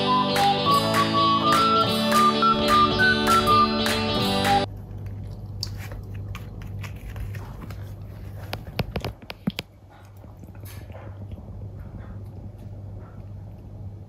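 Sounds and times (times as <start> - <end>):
puppy crunching dry food: 4.7 - 11.6.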